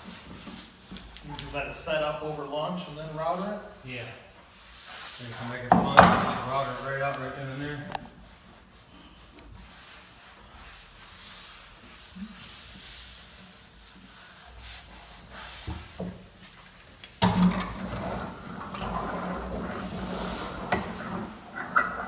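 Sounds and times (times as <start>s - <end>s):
hands rubbing laminate sheet: 0.0s - 17.0s, 18.0s - 22.0s
roller rolling rumble: 17.3s - 22.0s.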